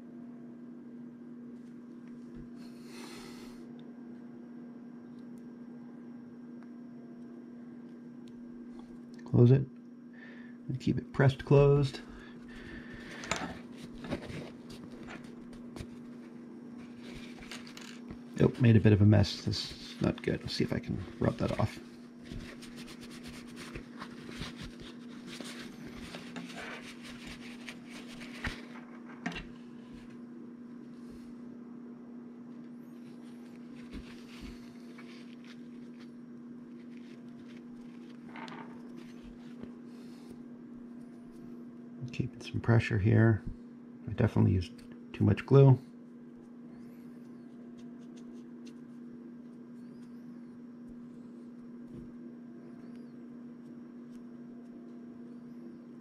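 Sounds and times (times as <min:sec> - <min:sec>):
steady hum: 0:00.0 - 0:56.0
tissue rubbing plastic: 0:21.1 - 0:29.0, 0:33.0 - 0:40.2.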